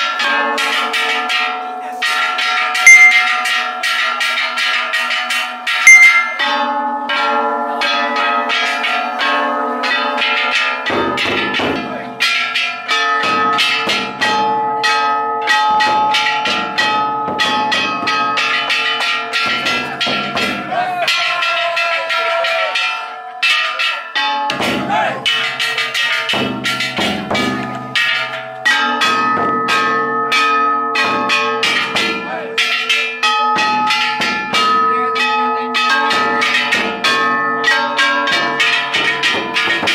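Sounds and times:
brass gongs clanging: 0:02.8 - 0:06.7.

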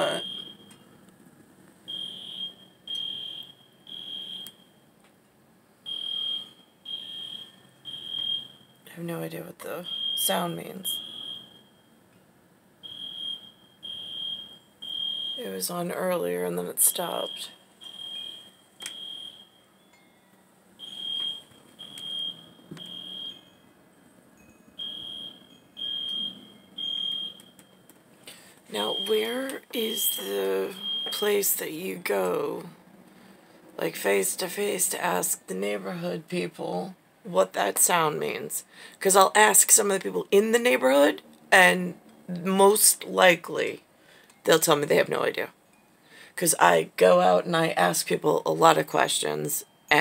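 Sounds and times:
electronic alarm beeping: 0:00.0 - 0:00.9, 0:01.9 - 0:04.9, 0:05.8 - 0:08.8, 0:09.8 - 0:12.0, 0:12.8 - 0:15.5, 0:17.1 - 0:20.1, 0:20.8 - 0:23.8, 0:24.4 - 0:27.9, 0:28.7 - 0:31.5.

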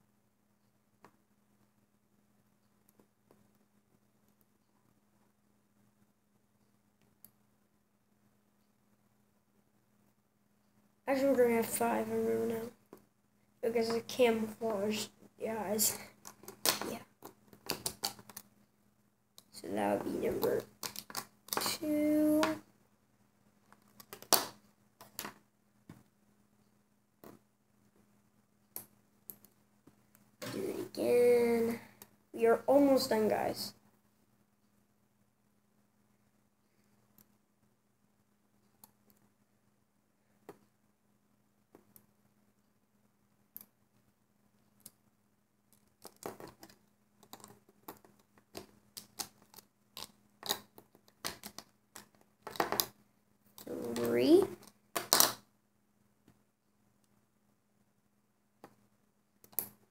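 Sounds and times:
loom bands clicking and snapping: 0:16.2 - 0:18.5, 0:45.7 - 0:53.0, 0:53.6 - 0:55.4.

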